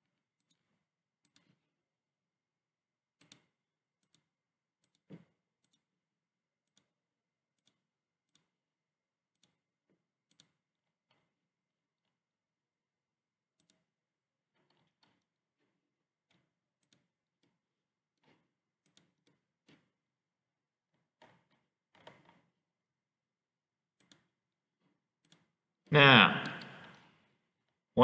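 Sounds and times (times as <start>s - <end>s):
computer mouse button clicking: 26.4s - 26.9s.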